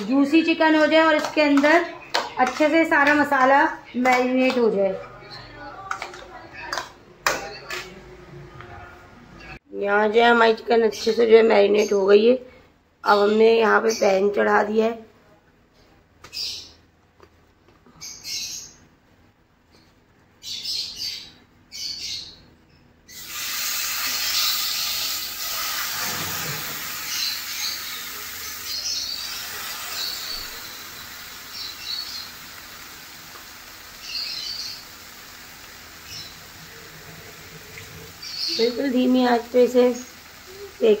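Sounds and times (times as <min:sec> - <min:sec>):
small birds chirping: 0:17.8 - 0:19.0, 0:19.7 - 0:23.2, 0:26.9 - 0:32.8, 0:33.5 - 0:36.8, 0:37.4 - 0:41.0
chicken sizzling in a frying pan: 0:23.1 - 0:41.0.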